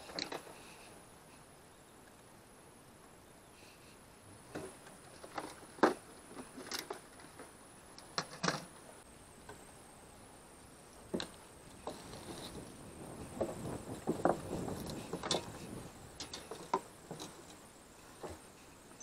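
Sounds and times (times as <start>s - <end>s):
fishing gear knocking and rattling: 13.3s - 17.6s.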